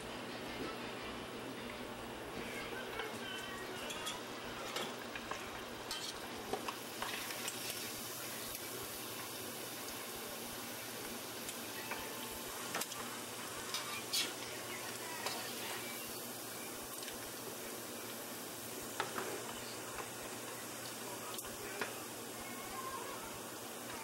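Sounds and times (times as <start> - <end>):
camcorder audio hiss: 0.0 - 24.0.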